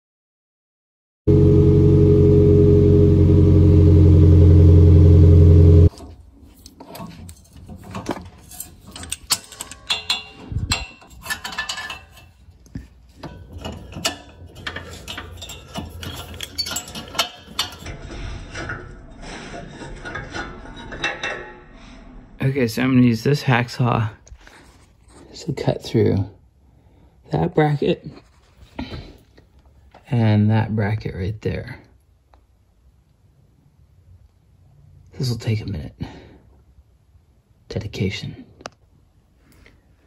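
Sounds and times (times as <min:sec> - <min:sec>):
car engine droning without muffler: 0:01.3 - 0:05.9.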